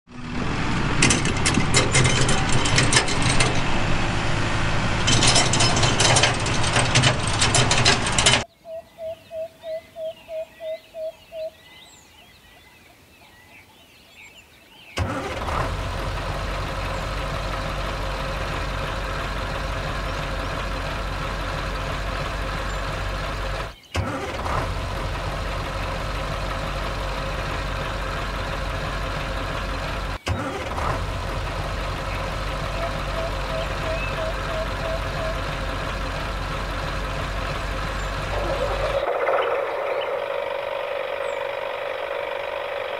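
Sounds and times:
truck engine running: 0.1s - 8.5s, 15.0s - 42.9s
faint bird chirps: 8.5s - 15.0s, 32.8s - 35.4s, 38.0s - 42.3s.

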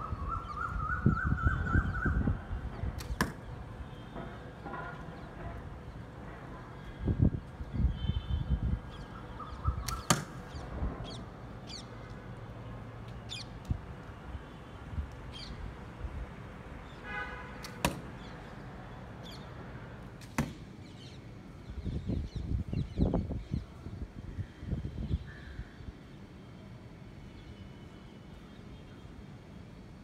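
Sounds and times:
bow string snapping: 9.8s - 10.3s.

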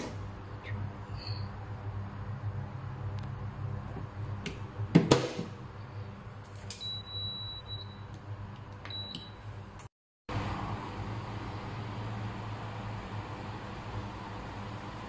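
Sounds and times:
control panel beeps: 8.9s - 9.4s.

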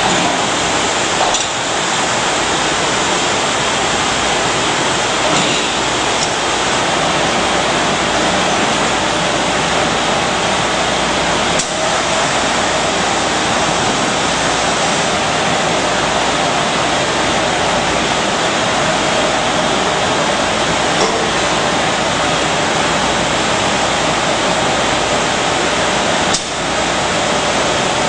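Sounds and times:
production line machinery din: 0.0s - 28.0s
sharp click: 26.3s - 26.6s.

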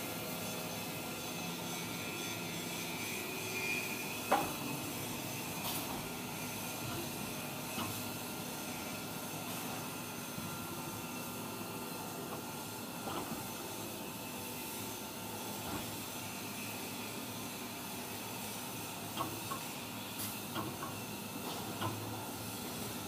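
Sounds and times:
hydraulic press hissing and humming: 0.0s - 23.0s.

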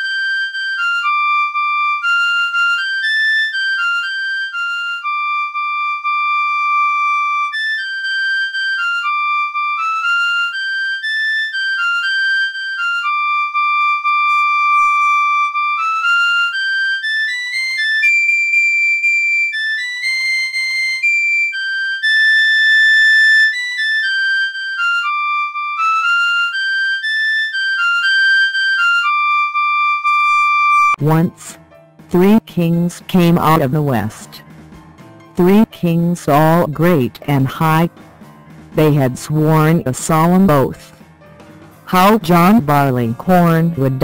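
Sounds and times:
flute-like woodwind melody: 0.0s - 31.6s.

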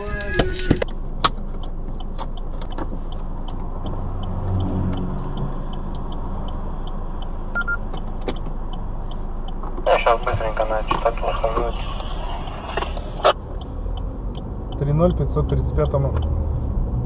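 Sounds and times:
engine and traffic hum: 0.0s - 17.0s
light even ticking: 0.4s - 9.8s, 12.4s - 16.4s.

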